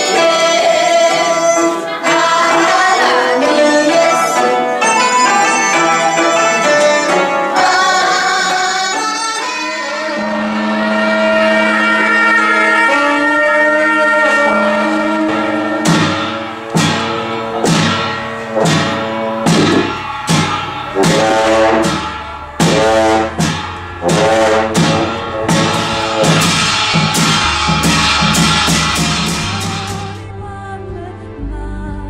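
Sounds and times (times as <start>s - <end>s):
sustained horn tones: 0.0s - 32.0s
cymbal crashes: 14.2s - 30.3s.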